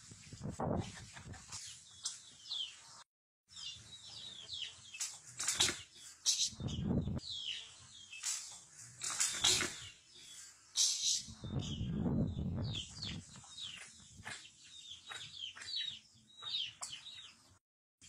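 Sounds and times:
chickens chirping: 0.6s - 2.9s, 3.5s - 17.6s
wing flapping and scuffling: 5.0s - 7.0s, 8.2s - 10.0s.

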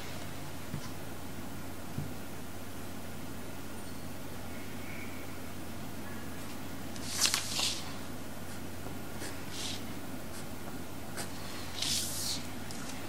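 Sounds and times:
steady low hum: 0.0s - 13.0s
pencil scratching on paper: 7.5s - 10.6s, 11.2s - 12.4s.

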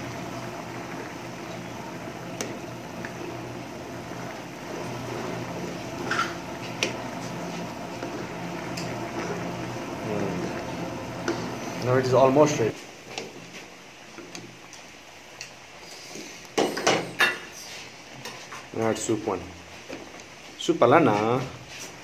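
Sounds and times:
soup bubbling and sloshing: 0.0s - 11.8s.

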